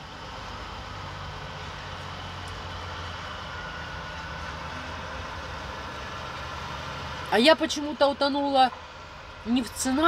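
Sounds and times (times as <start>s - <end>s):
truck engine idling: 0.0s - 10.0s.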